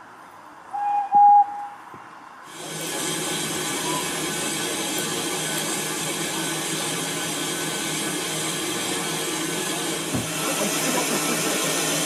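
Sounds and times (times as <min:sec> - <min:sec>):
steam locomotive hissing: 0:02.5 - 0:12.0.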